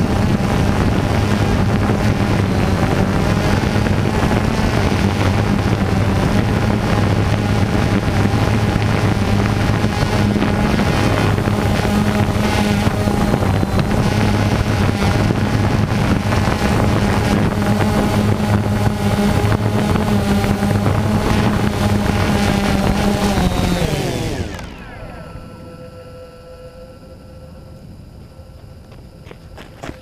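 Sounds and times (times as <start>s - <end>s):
drone motors buzzing: 0.0s - 30.0s.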